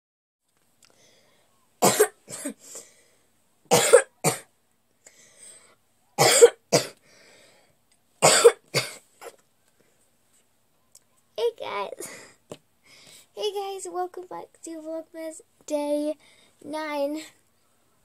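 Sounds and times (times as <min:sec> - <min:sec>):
girl coughing: 0:01.8 - 0:02.6, 0:03.7 - 0:04.5, 0:06.2 - 0:07.0, 0:08.2 - 0:09.4.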